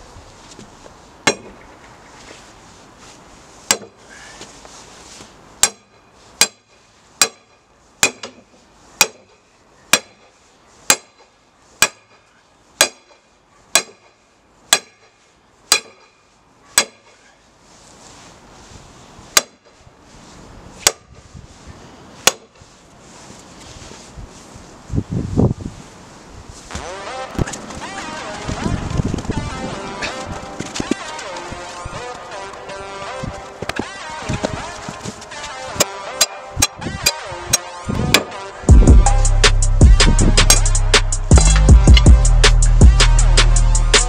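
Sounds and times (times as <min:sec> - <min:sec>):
hammer striking steel rod: 0:01.2 - 0:01.6, 0:03.7 - 0:04.0, 0:05.6 - 0:08.4, 0:09.0 - 0:10.3, 0:10.9 - 0:12.2, 0:12.8 - 0:16.2, 0:16.8 - 0:17.2, 0:19.4 - 0:19.7, 0:22.2 - 0:22.6, 0:35.8 - 0:38.3.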